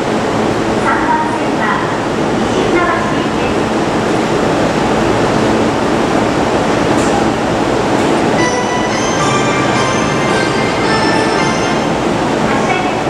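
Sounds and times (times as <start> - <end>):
train standing at platform: 0.0 - 13.0
platform chime: 8.4 - 12.2.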